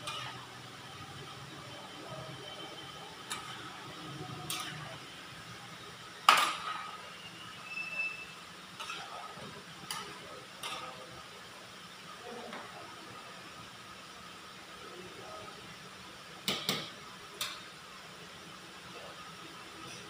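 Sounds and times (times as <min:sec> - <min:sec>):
metal spatula scraping a pan: 0:00.0 - 0:00.4, 0:04.4 - 0:05.0, 0:08.8 - 0:09.2
steady background hum: 0:00.0 - 0:20.0.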